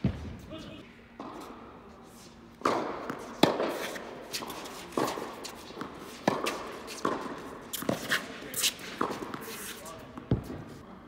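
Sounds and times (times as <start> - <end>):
ball bouncing on hard court: 2.6 - 9.5, 10.1 - 10.7
tennis ball struck by racquets: 2.6 - 9.6.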